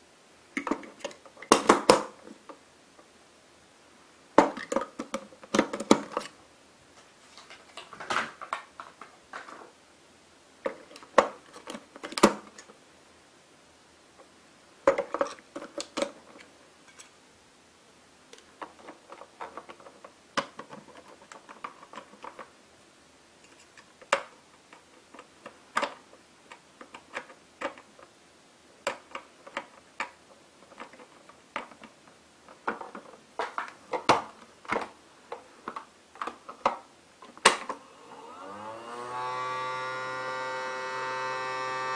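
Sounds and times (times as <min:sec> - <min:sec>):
plastic clicks and knocks: 0:04.4 - 0:06.3, 0:18.4 - 0:22.5, 0:28.8 - 0:37.8
handling hard plastic body: 0:28.8 - 0:37.8.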